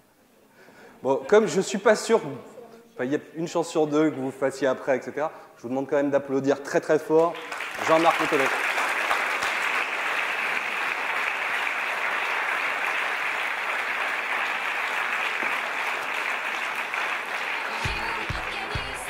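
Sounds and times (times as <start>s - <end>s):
audience applauding: 7.2s - 19.0s
music with a regular beat: 17.8s - 19.0s.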